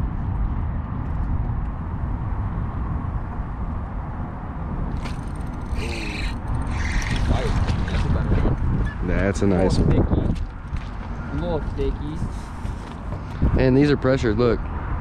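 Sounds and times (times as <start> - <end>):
wind buffeting microphone: 0.0 - 15.0
water splashing: 5.0 - 8.3.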